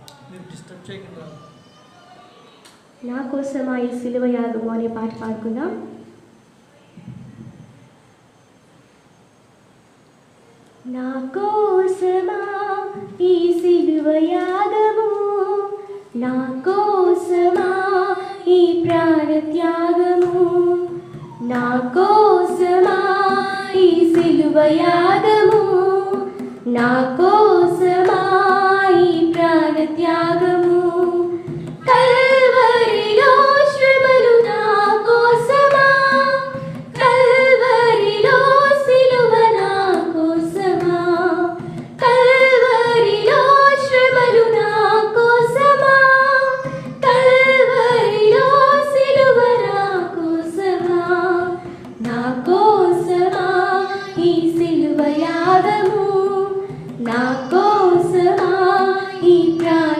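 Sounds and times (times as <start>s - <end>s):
women singing in unison: 10.9s - 59.9s
hands clapping in time: 20.2s - 29.8s.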